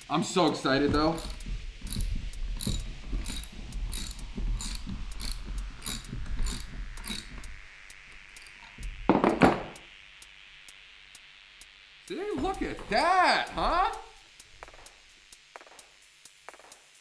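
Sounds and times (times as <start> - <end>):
socket ratchet clicking: 1.1 - 8.6
loud knock: 9.1 - 9.8.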